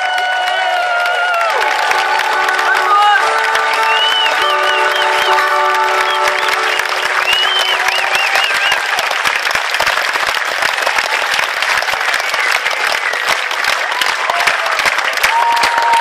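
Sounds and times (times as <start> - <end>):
crowd shouts and whoops: 0.0 - 6.3, 14.0 - 16.0
audience applauding: 0.0 - 16.0.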